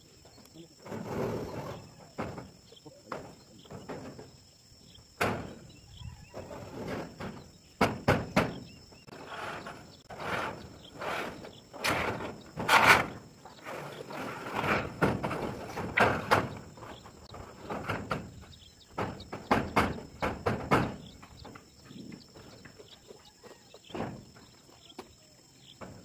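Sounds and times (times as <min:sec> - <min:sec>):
insect drone: 0:00.0 - 0:26.0
metal roofing sheets clattering: 0:00.8 - 0:04.4, 0:05.2 - 0:05.7, 0:06.3 - 0:22.6.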